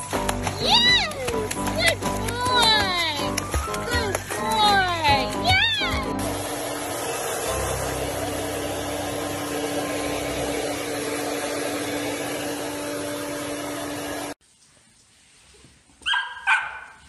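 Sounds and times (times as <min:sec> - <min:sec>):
appliance motor humming: 0:03.3 - 0:14.4.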